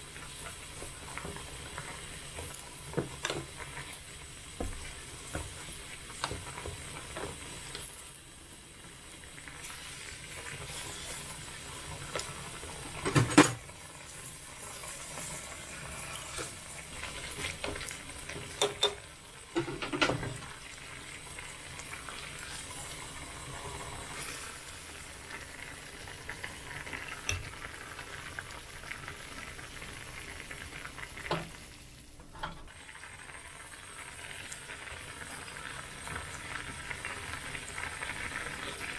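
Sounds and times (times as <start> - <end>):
broth bubbling in a pot: 0.0 - 38.9.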